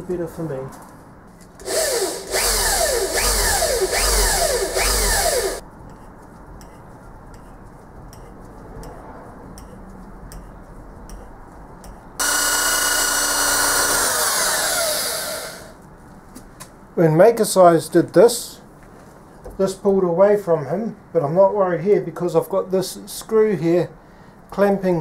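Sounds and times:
cordless drill drilling into metal: 1.6s - 5.6s, 12.2s - 15.8s.

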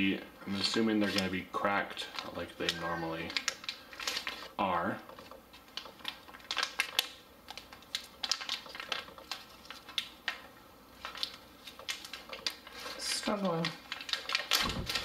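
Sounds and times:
food pouch crinkling and tearing: 2.0s - 15.0s.

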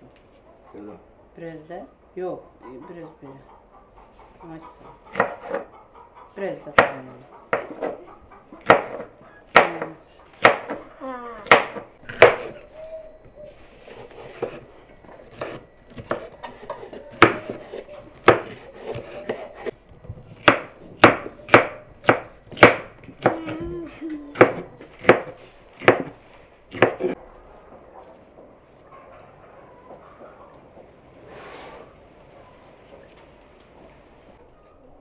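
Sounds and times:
knife chopping on cutting board: 5.1s - 5.7s, 6.7s - 8.0s, 8.6s - 10.8s, 11.4s - 12.6s, 13.8s - 19.8s, 20.4s - 23.6s, 24.4s - 27.2s.

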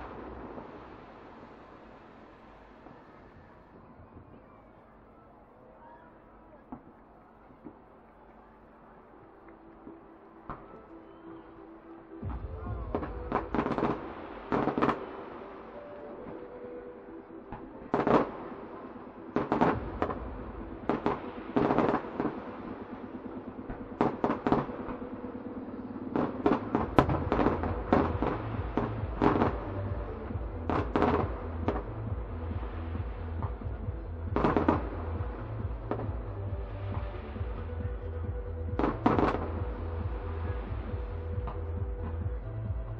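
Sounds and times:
fireworks bangs and crackles: 0.0s - 4.9s, 12.2s - 16.8s, 17.5s - 42.9s
music with held tones: 7.4s - 42.9s
bass beat: 12.2s - 13.6s, 26.8s - 42.9s.

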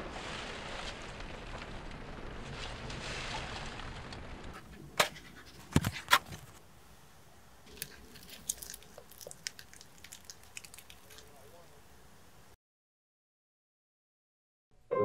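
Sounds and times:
fried fish crackling in paper basket: 0.0s - 6.6s, 7.6s - 11.8s.

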